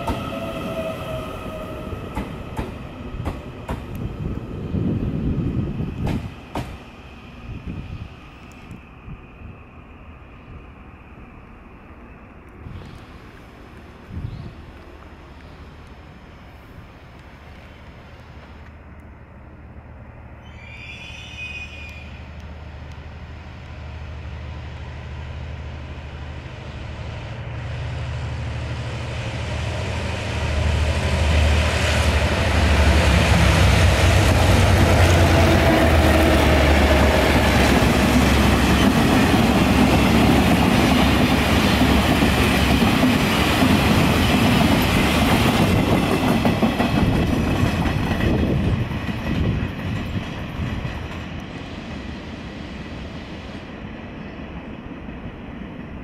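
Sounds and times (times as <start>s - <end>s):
diesel locomotive engine hum: 0.0s - 56.0s
train wheels clattering over rail joints: 2.1s - 4.1s, 6.0s - 6.8s, 37.3s - 51.8s.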